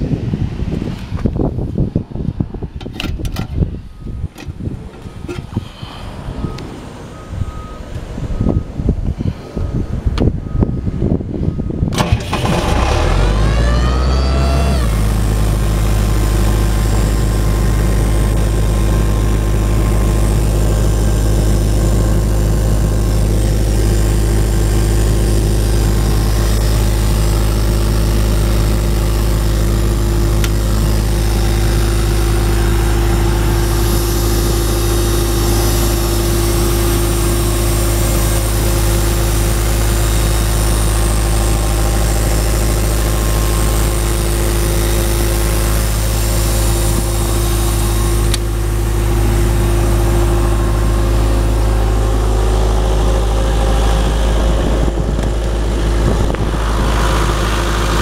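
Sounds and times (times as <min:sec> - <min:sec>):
diesel engine starting and running: 0:00.0 - 0:58.0.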